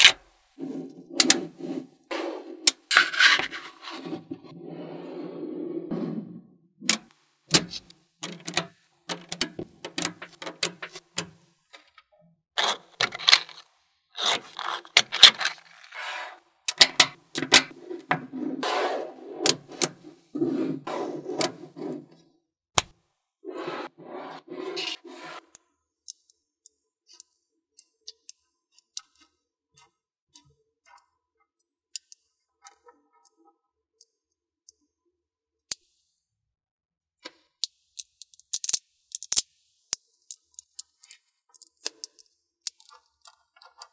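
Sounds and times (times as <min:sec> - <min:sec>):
metal balls clicking and scraping: 0:06.9 - 0:12.0, 0:12.6 - 0:22.2, 0:37.6 - 0:43.9.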